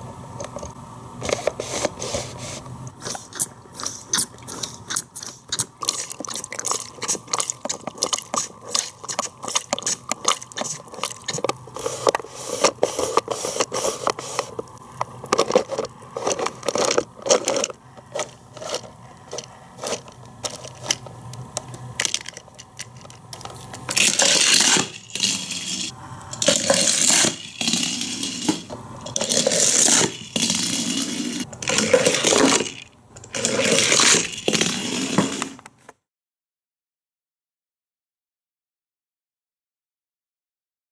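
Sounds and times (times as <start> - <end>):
toy mechanism clicking rapidly: 3.0 - 14.6, 15.3 - 35.4.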